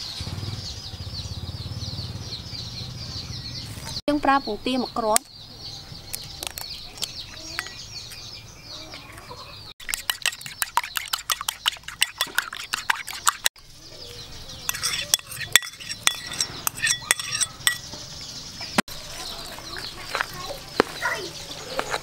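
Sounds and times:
birds calling: 0.0 - 22.0
spoon beating egg in bowl: 9.8 - 13.5, 14.7 - 17.8.

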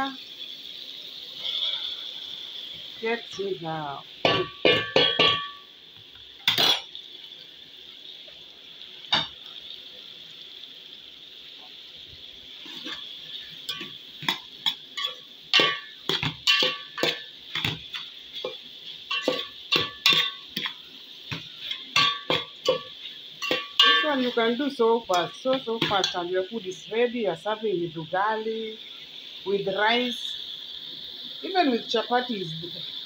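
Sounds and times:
food sizzling: 0.0 - 33.0
metal spoon scraping a pot: 12.6 - 20.8, 21.6 - 24.4.

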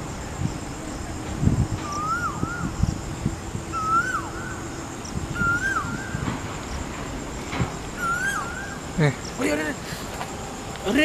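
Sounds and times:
faint steady hum: 0.0 - 11.0
animal calling: 8.0 - 9.4.

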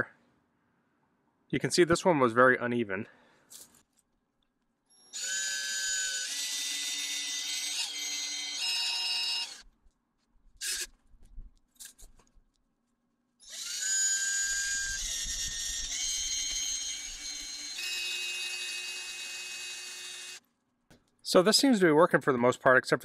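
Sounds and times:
drill whining into brick: 4.9 - 9.7, 10.6 - 11.0, 13.4 - 20.4.

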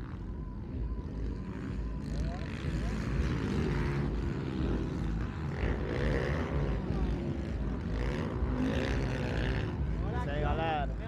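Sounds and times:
dirt bike engines revving: 0.0 - 11.0.

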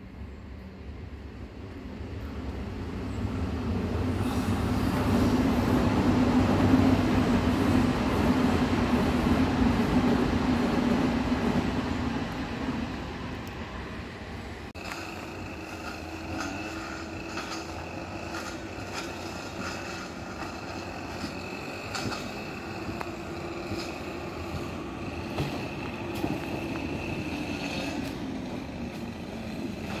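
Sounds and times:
electric train hum and whine: 0.0 - 30.0
wheels clicking on rails: 14.8 - 30.0.

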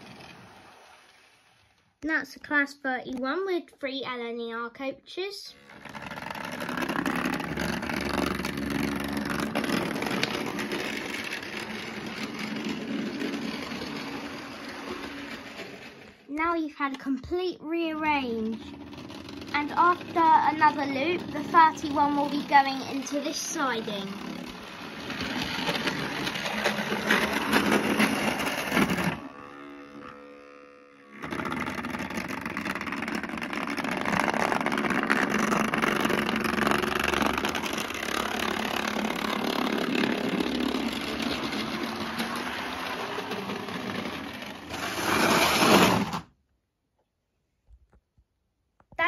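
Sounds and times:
electric motor whirring: 5.5 - 16.2, 18.5 - 46.2
wheels rattling on rails: 5.6 - 16.3, 18.2 - 29.3, 36.1 - 45.9.

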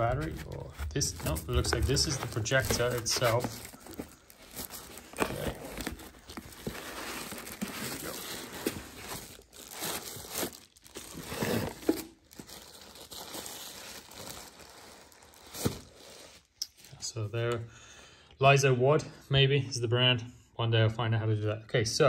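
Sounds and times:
packaging rubbing: 0.0 - 16.4
plastic bag crinkling: 0.2 - 16.0.

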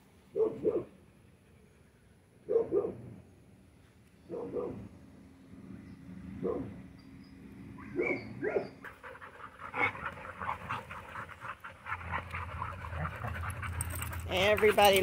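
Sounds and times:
dogs panting: 8.5 - 15.0
dogs scuffling in play: 9.8 - 15.0.

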